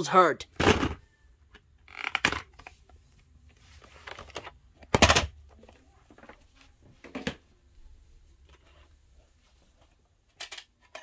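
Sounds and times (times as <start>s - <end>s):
plastic tape case clacking: 1.8s - 2.7s.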